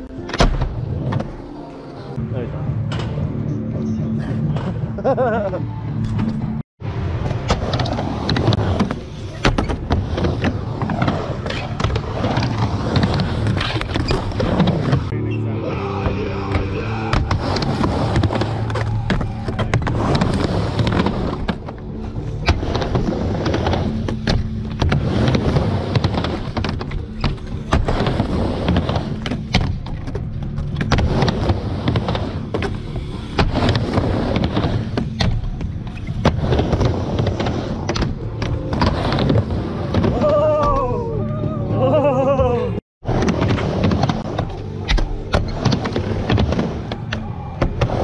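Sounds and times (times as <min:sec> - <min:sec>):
skateboard rolling and clacking: 0:06.1 - 0:15.1, 0:17.2 - 0:40.2
skateboard impacts: 0:07.0 - 0:15.1, 0:16.0 - 0:40.9.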